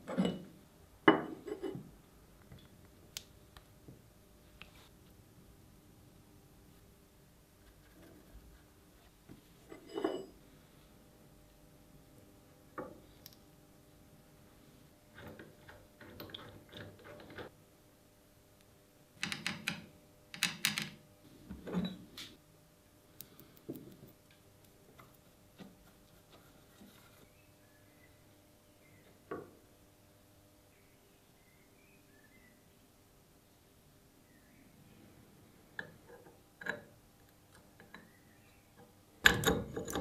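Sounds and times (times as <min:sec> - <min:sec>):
steel parts knocking and clinking: 0:39.2 - 0:40.0.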